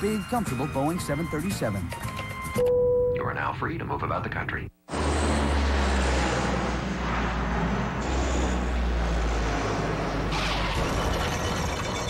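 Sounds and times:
cargo plane engines droning: 4.9s - 12.0s
plane rushing noise on runway: 4.9s - 12.0s.

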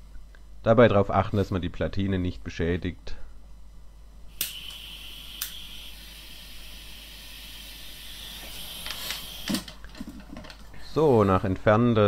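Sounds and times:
sharp clicks: 5.4s - 5.6s.

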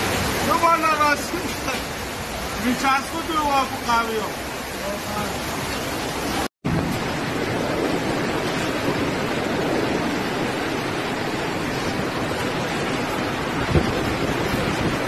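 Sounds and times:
heavy rain and floodwater rushing: 0.0s - 15.0s.

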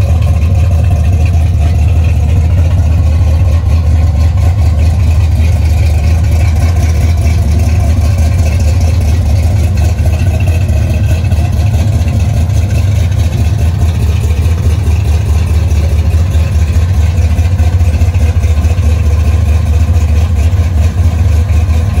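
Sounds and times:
car engine idling: 0.0s - 22.0s.

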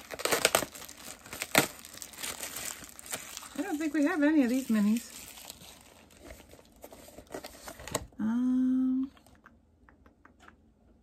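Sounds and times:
packaging crinkling and rustling: 0.0s - 8.2s.

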